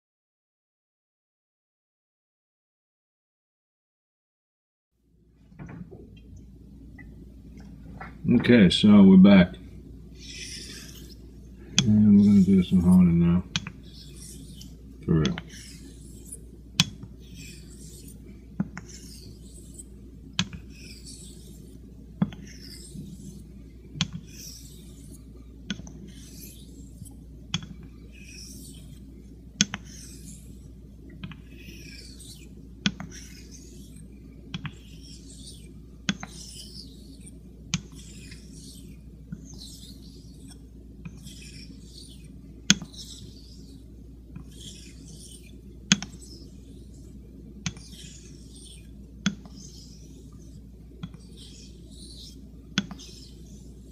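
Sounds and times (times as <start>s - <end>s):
razor rasping on whetstone: 10.2s - 13.0s, 13.6s - 14.8s, 15.4s - 25.2s, 25.8s - 27.2s, 28.0s - 29.1s, 29.7s - 30.8s, 31.4s - 53.9s.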